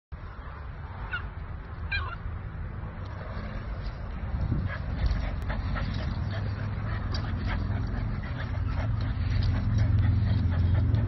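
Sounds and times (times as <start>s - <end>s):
puppies yipping: 1.0s - 2.3s, 4.6s - 11.0s
low rumble: 2.6s - 11.0s.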